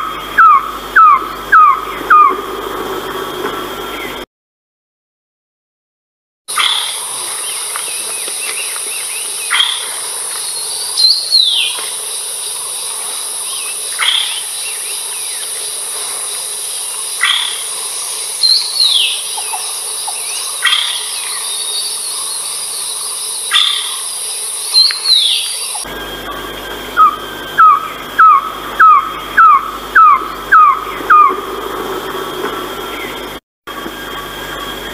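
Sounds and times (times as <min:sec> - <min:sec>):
high-pitched insect drone: 0:00.0 - 0:04.2, 0:06.5 - 0:34.9
bird calling falling notes: 0:24.8 - 0:31.5.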